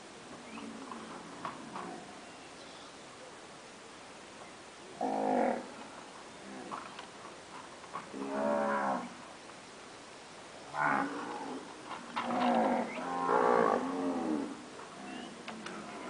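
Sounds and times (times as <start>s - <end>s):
cattle mooing: 5.0s - 5.7s, 10.8s - 16.0s.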